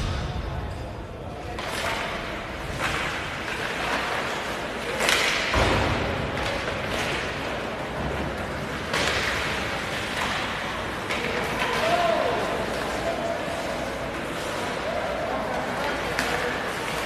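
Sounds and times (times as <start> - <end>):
skate blades scraping ice: 6.2 - 17.0.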